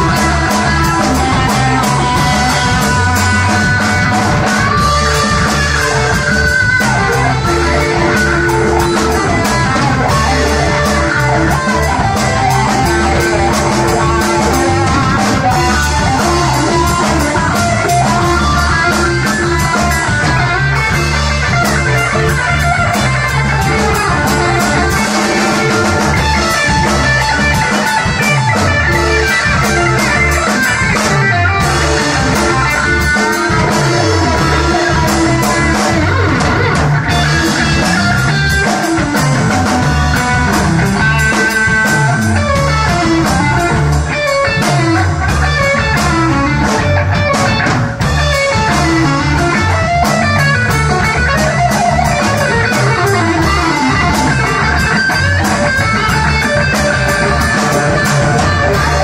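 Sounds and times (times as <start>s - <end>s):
electric guitars playing rock: 0.0s - 59.0s
regular beat: 0.0s - 59.0s.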